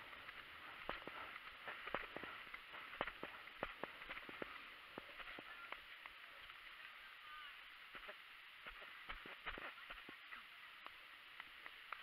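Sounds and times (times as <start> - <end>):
horse hoofbeats and tack: 0.0 - 6.1, 7.9 - 10.2.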